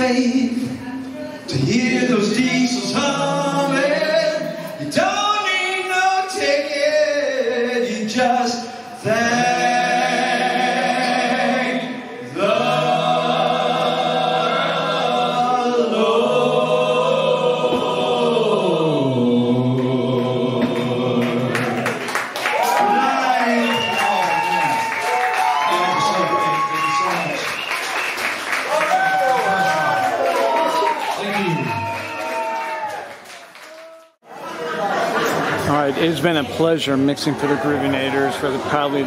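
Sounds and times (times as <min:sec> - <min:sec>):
voices singing together: 0:01.5 - 0:22.2.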